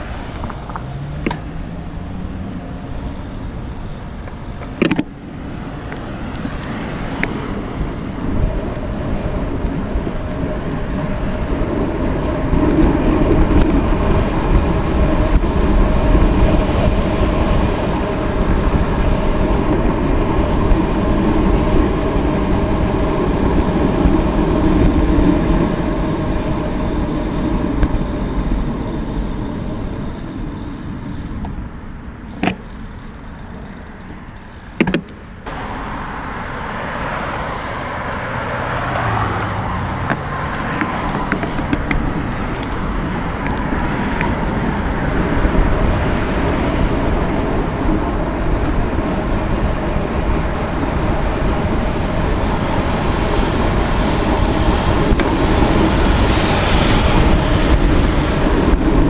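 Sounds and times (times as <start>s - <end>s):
bicycle tyres rolling: 0.0s - 59.0s
cars driving: 0.0s - 59.0s
wind rushing: 35.4s - 59.0s.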